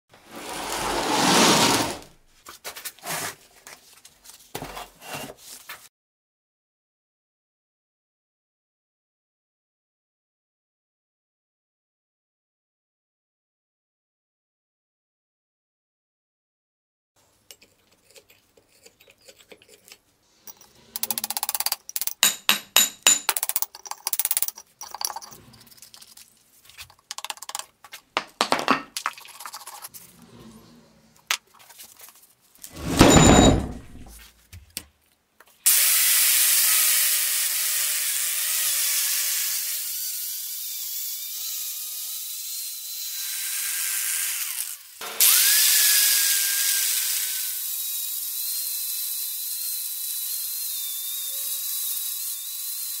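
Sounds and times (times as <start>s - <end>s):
angle grinder wire wheel grinding: 0.3s - 2.1s, 18.0s - 22.2s, 23.5s - 26.3s
steel rod scraping and clinking: 17.5s - 27.7s.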